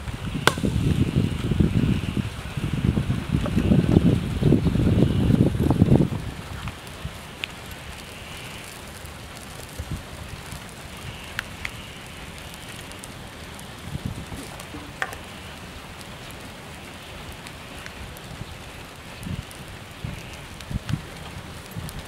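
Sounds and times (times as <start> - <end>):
background hiss: 5.8 - 20.8.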